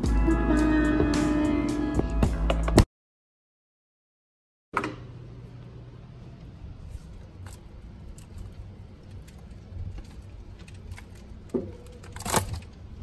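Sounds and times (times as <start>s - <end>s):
freezer low hum: 4.7s - 13.0s.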